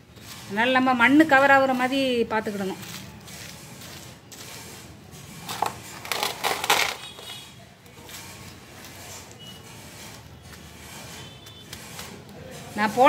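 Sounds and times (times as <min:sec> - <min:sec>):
crunchy rustling of soil and peels: 0:02.5 - 0:04.8.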